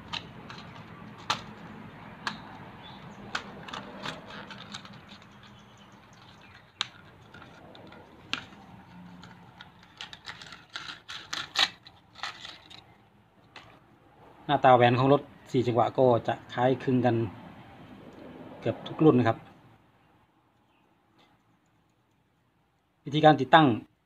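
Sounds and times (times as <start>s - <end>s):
paper wrapping rustling: 3.3s - 13.0s.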